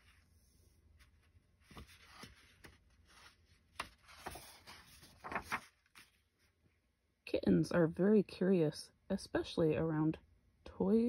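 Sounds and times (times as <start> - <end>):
paper pages rustling: 0.0 - 6.6
soft page taps and flaps: 1.0 - 6.2.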